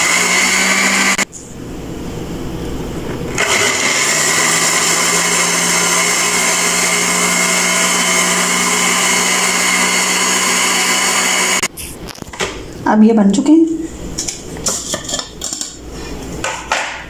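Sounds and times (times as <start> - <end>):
blender motor grinding: 0.0 - 1.2, 3.4 - 11.7.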